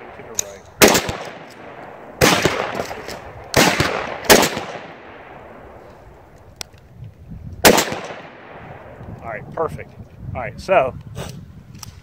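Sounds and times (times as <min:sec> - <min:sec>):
rifle shots: 0:00.0 - 0:05.8, 0:07.6 - 0:09.0.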